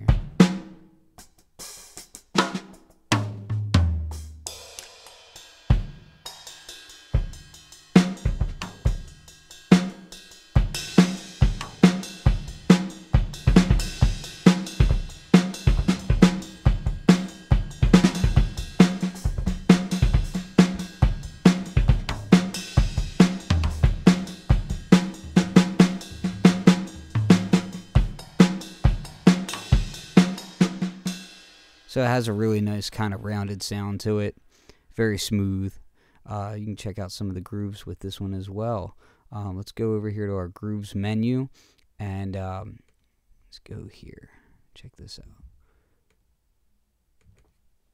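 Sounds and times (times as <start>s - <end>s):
hi-hat and cymbals: 0.0s - 3.0s, 4.2s - 32.4s
snare drum: 1.8s - 5.9s, 9.7s - 31.2s.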